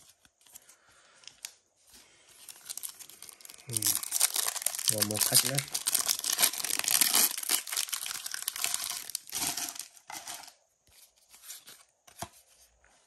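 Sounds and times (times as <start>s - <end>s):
foil wrapper tearing and crinkling: 2.4s - 10.5s.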